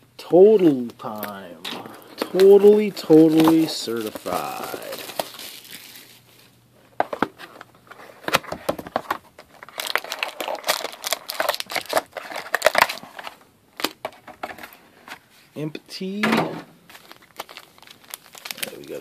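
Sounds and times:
foil packs crinkling: 1.0 - 6.5, 7.9 - 14.0, 16.8 - 19.0.

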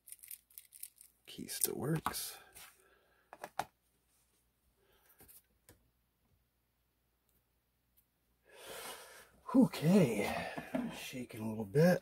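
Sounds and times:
soft breathy noise: 8.4 - 9.5.

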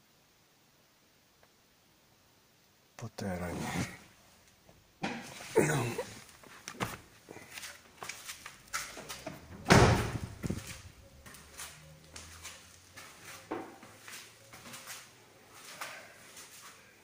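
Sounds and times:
footsteps on concrete: 6.2 - 9.4, 10.2 - 16.8
car door slamming: 9.5 - 10.7.

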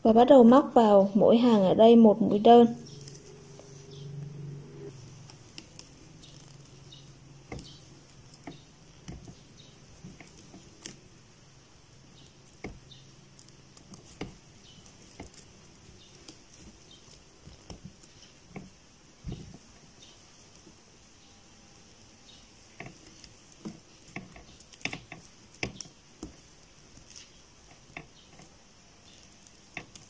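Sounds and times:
faint low hum: 0.0 - 30.0
crochet hook clicking: 22.8 - 30.0.

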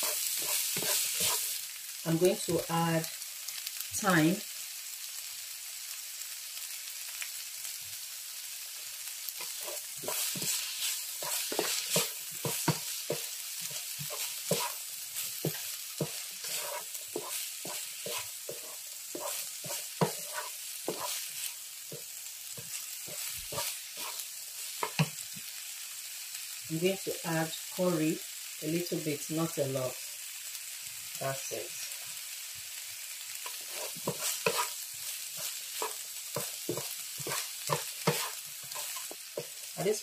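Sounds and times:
spatula scraping against pan: 0.0 - 1.6, 9.4 - 25.2, 33.4 - 39.8
vegetables sizzling in frying pan: 0.0 - 40.0.

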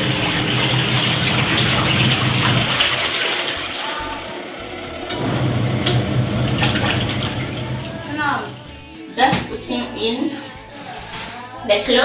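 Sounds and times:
sloshing water: 0.0 - 8.8
washing machine motor hum: 0.0 - 10.1.

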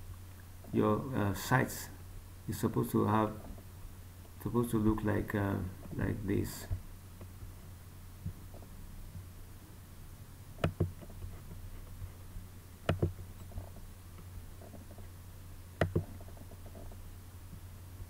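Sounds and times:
low electrical hum: 0.0 - 18.0
computer mouse double-clicks: 15.8 - 16.4.

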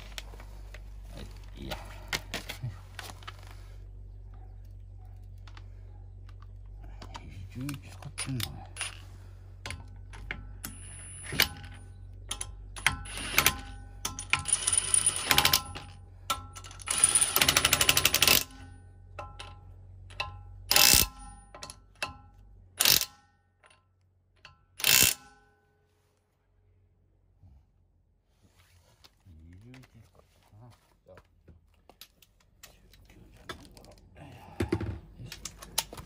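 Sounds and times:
impact wrench hammering: 9.6 - 23.8.

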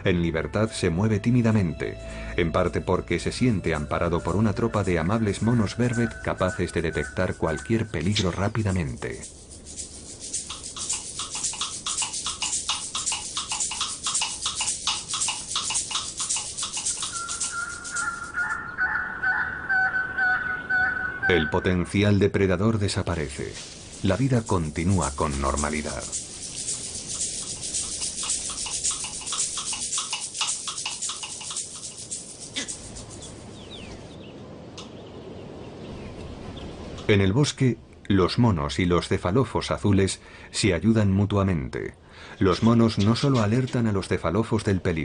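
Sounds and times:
rapid animal chirps: 4.2 - 21.7, 23.6 - 34.1
steady whistle-like tone: 4.6 - 8.3, 17.0 - 18.8
faint bird chirps: 15.8 - 21.8.

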